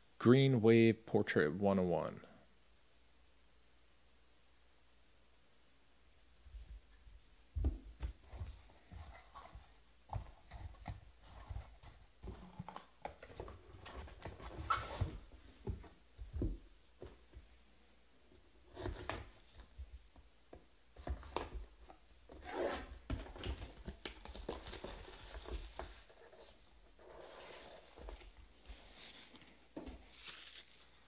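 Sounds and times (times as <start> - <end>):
plastic wrapper rustling: 28.1 - 31.0.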